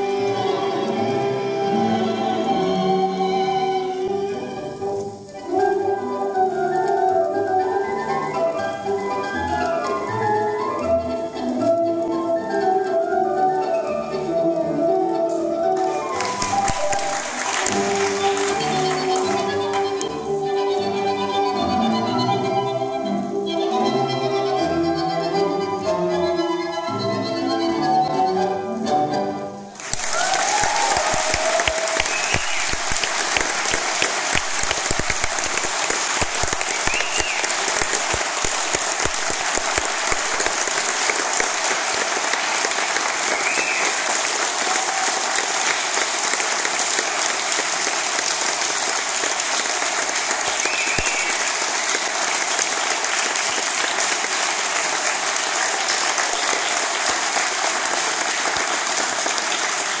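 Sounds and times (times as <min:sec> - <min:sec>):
music: 0:00.0 - 1:00.0
audience calls: 0:15.8 - 0:20.0, 0:29.8 - 1:00.0
audience applauding: 0:15.8 - 0:20.2, 0:29.8 - 1:00.0.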